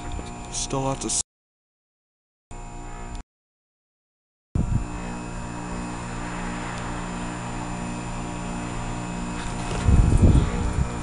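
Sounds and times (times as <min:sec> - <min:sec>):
heat pump compressor humming: 0:00.0 - 0:01.2, 0:02.6 - 0:03.2, 0:04.6 - 0:11.0.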